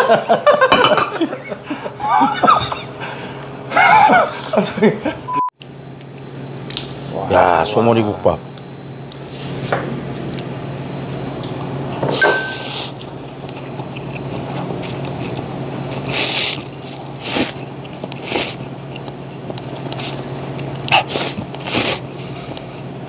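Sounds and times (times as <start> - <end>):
person slurping noodles: 14.1 - 18.7, 20.9 - 22.9.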